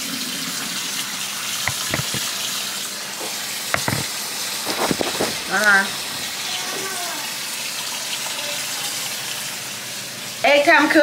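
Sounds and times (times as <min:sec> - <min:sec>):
faucet running into steel sink: 0:00.0 - 0:11.0
knocks against sink: 0:01.7 - 0:02.3, 0:03.7 - 0:04.1.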